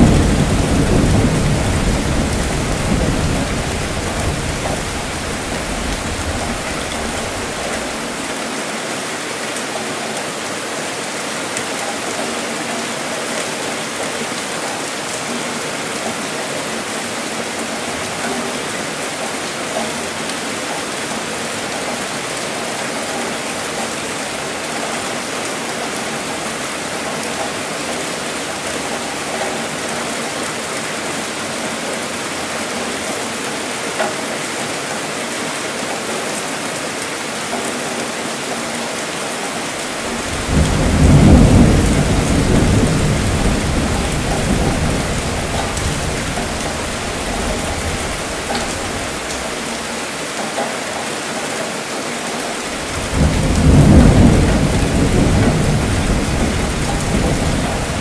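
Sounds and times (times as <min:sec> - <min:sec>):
rumbling thunder: 0:00.0 - 0:08.2, 0:39.9 - 0:49.5, 0:52.8 - 0:58.0
steady rainfall: 0:00.0 - 0:58.0.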